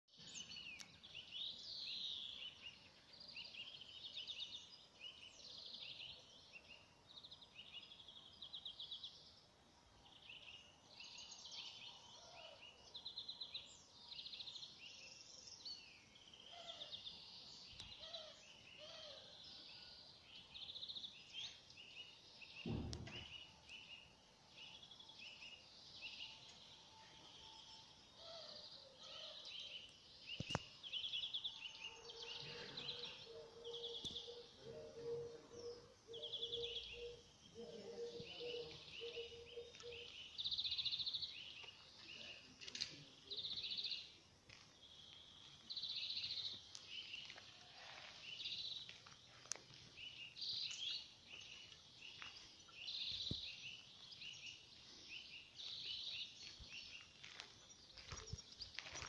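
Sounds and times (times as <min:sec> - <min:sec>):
songbirds chirping and trilling: 0:00.0 - 0:59.0
dull thump: 0:22.6 - 0:23.4.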